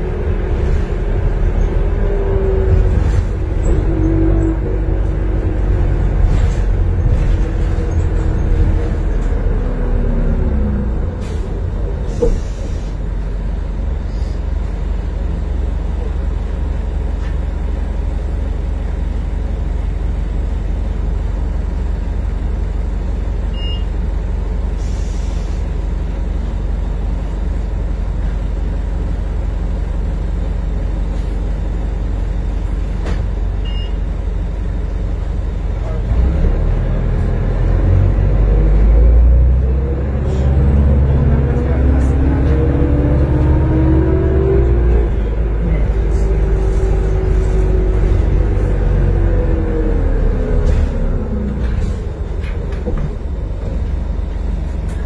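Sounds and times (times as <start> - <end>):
bus engine and drivetrain whine: 0.0 - 55.0
air brake hiss: 12.1 - 13.0, 14.1 - 14.4, 24.8 - 25.7.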